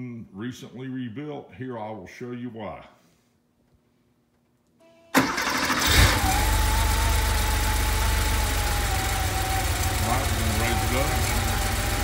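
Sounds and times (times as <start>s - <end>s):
car engine idling: 5.2s - 12.0s
starter cranking engine: 5.2s - 12.0s.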